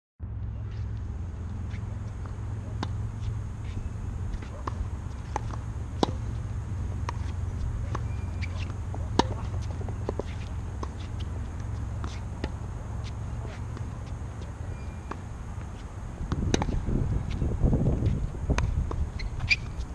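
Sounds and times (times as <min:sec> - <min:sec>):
tennis ball bounces: 0:00.7 - 0:19.9
racket hitting ball: 0:01.6 - 0:19.8
wind buffeting microphone: 0:16.1 - 0:19.9.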